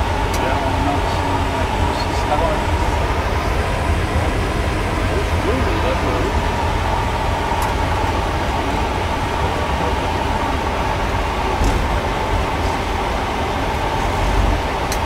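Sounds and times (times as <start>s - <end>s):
aircraft engine rumble: 0.0s - 15.0s
thin steady whine: 0.0s - 15.0s.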